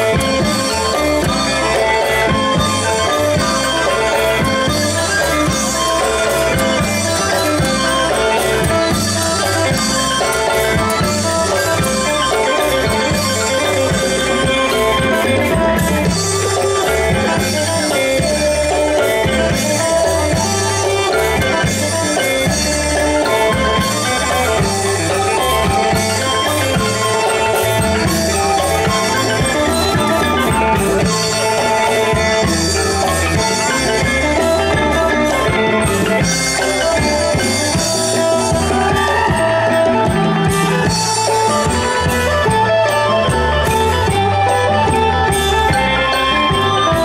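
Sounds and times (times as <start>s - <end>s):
folk ensemble melodic instruments: 0.0s - 47.0s
steady drumbeat: 0.0s - 47.0s.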